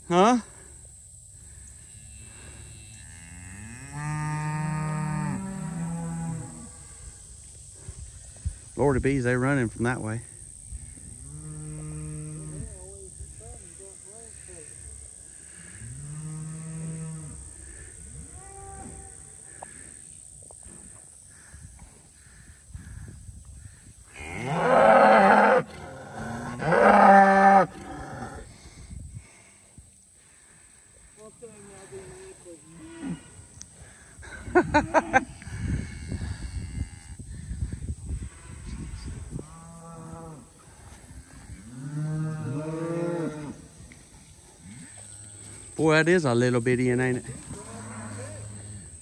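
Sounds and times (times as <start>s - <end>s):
cow mooing: 24.2s - 28.4s.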